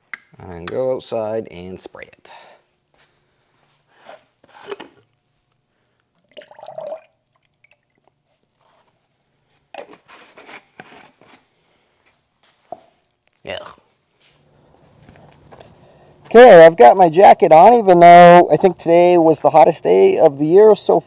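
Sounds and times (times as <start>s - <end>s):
faint low hum: 0.0s - 21.0s
clothing and gloves rustling: 2.9s - 5.6s, 14.0s - 16.4s.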